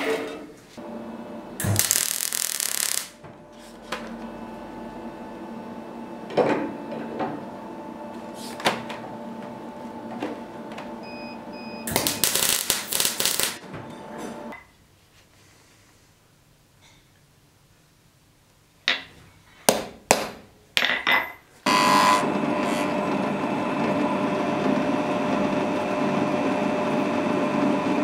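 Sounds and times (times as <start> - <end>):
steady hum: 0.8 - 14.5
welding arc crackling: 0.9 - 4.8, 11.8 - 13.6.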